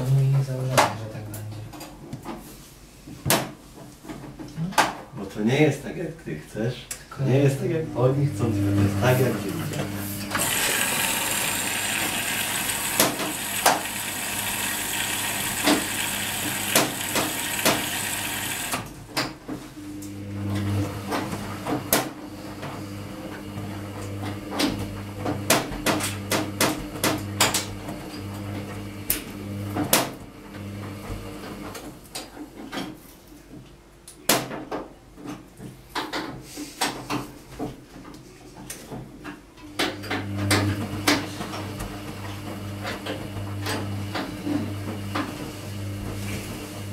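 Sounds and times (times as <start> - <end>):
washing machine drum humming: 7.2 - 32.7, 39.6 - 46.9
water filling washing machine drum: 8.6 - 19.0, 20.2 - 31.8, 39.7 - 46.9.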